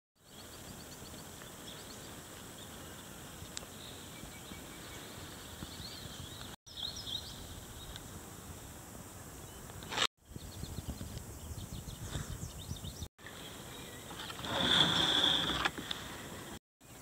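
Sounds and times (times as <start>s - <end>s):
small birds chirping: 0.2s - 8.1s, 9.3s - 14.4s.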